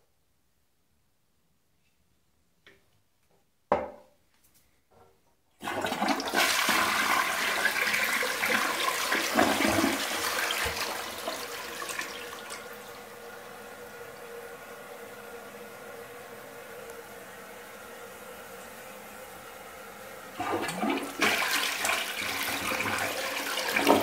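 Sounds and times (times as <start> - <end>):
knock: 3.7 - 4.1
toilet flush rushing water: 5.6 - 24.0.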